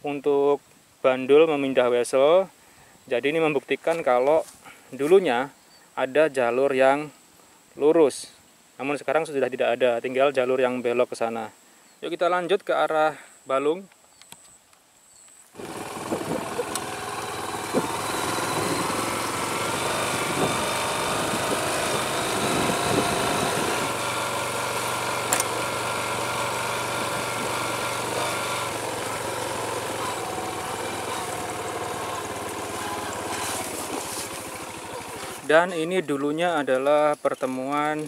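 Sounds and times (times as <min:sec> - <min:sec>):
small vehicle engine running: 0:15.6 - 0:35.5.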